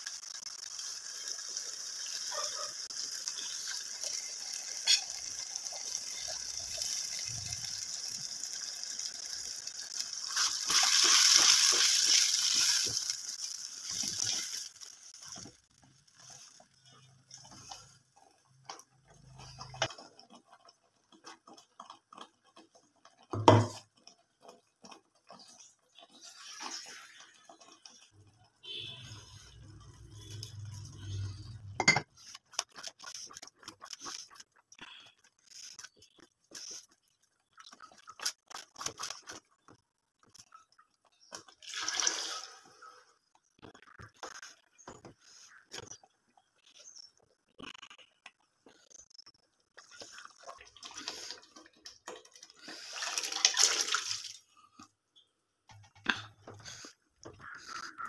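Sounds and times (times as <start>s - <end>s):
spatula scraping a metal pot: 4.8s - 5.2s
pot knocking and clinking: 31.8s - 32.1s.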